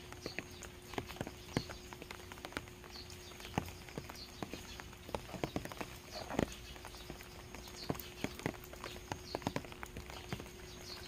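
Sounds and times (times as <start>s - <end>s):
rain dripping: 0.0s - 11.0s.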